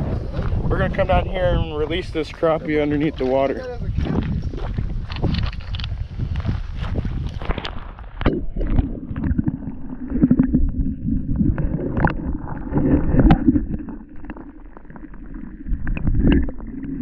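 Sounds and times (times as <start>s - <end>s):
underwater rumble of moving water: 7.9s - 17.0s.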